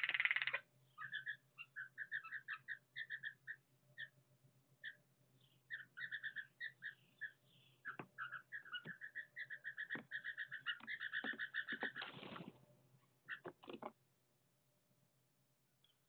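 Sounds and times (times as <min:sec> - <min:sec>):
blue jays calling: 0:05.7 - 0:12.3.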